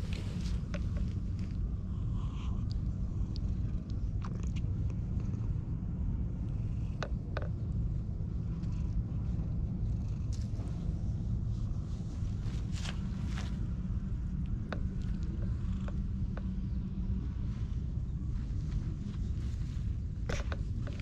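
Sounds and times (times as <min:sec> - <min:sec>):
cat purring: 0:00.0 - 0:21.0.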